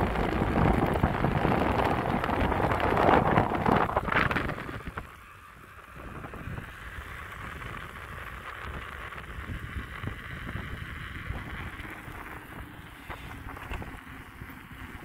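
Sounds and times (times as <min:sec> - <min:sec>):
wind rumbling on microphone: 0:00.0 - 0:15.0
bike tyres hissing on wet pavement: 0:06.6 - 0:15.0.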